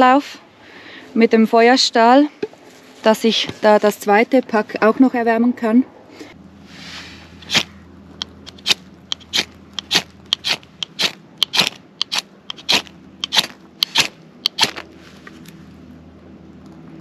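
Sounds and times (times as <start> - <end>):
metal striker scraping ferro rod: 7.4 - 14.9.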